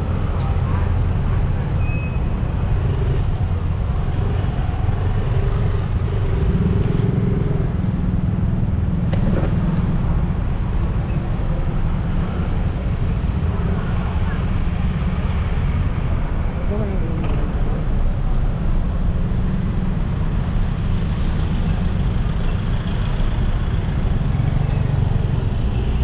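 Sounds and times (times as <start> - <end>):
low traffic rumble: 0.0 - 26.0
motorcycle and car engines: 0.0 - 26.0.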